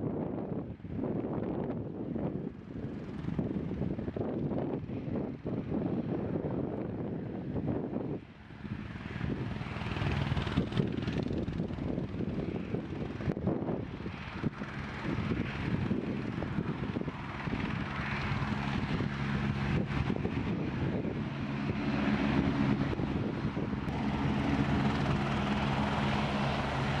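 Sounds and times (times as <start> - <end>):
helicopter rotor chopping: 1.1 - 27.0
turbine engine running: 8.6 - 27.0.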